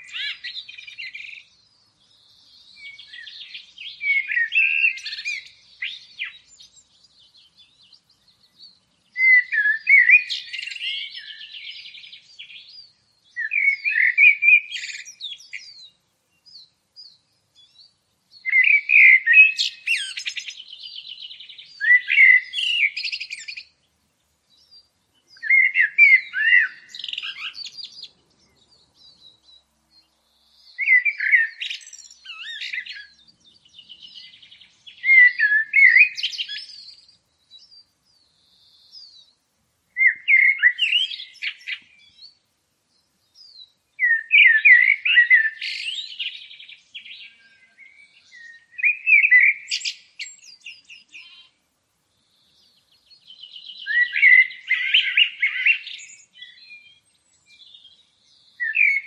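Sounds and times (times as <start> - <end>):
songbird warbling: 0.0 - 1.5, 2.6 - 7.9, 9.2 - 15.8, 18.4 - 23.7, 25.4 - 29.4, 30.5 - 37.0, 40.0 - 42.2, 43.6 - 51.6, 52.7 - 57.9, 58.6 - 59.0.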